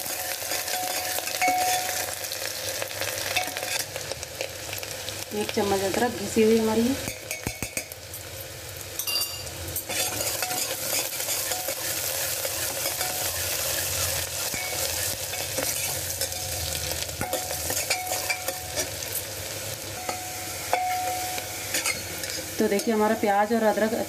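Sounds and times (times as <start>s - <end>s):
food sizzling in hot oil: 0.0s - 24.0s
ladle scraping metal pot: 9.9s - 13.8s.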